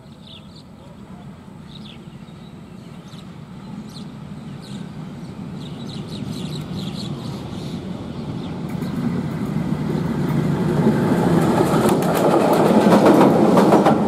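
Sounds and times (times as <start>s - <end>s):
birds chirping: 0.0s - 10.6s
diesel locomotive rumble: 0.2s - 14.0s.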